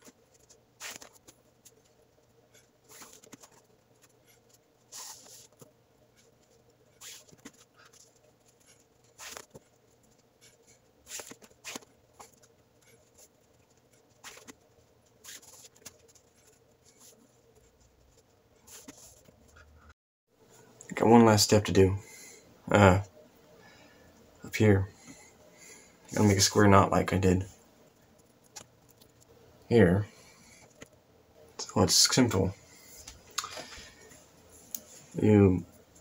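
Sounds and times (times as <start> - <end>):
cord rustling as braided: 0.0 - 19.7, 32.6 - 36.0
faint steady hum: 0.0 - 36.0.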